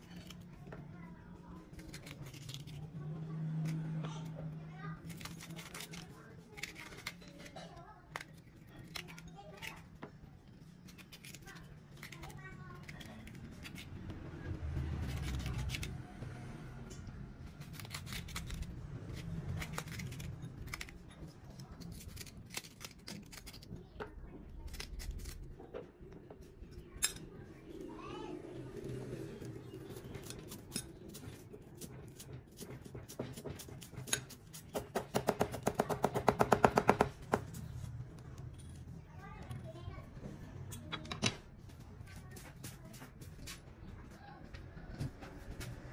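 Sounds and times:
cleaver chopping on wooden block: 32.9 - 37.4.

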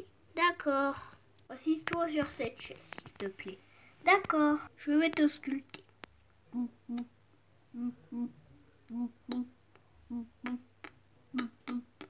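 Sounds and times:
person humming a heartbeat rhythm: 6.5 - 7.1, 7.8 - 12.0.

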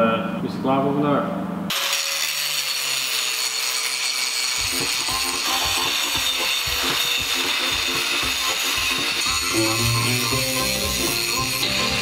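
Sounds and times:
angle grinder grinding steel: 1.7 - 12.0
background music with a beat: 4.6 - 12.0.

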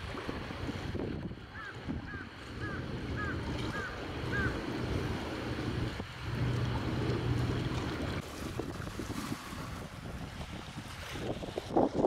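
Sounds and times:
boat engine humming: 0.0 - 10.6
wind buffeting microphone: 0.0 - 12.0.

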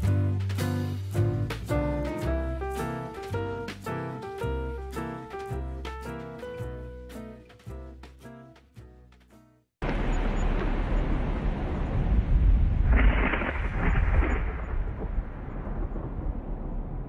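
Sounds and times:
loud rumbling rush: 9.8 - 17.0.

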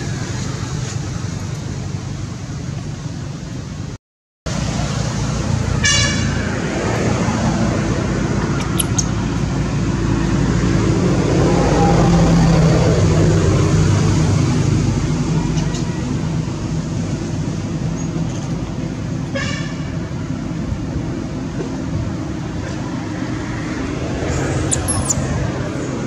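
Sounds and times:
vehicle engine rumbling: 0.0 - 26.0
brief high squeak: 24.7 - 25.2.

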